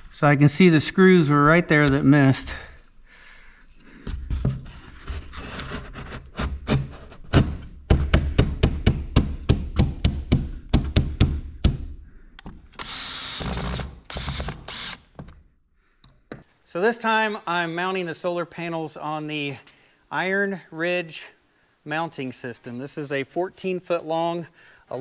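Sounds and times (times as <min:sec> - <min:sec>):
power drill running: 0:12.8 - 0:15.2.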